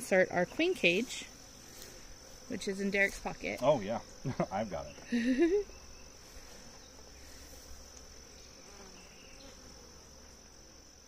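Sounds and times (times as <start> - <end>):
bees buzzing faintly: 0.0 - 11.0
high-pitched insect trill: 0.0 - 11.0.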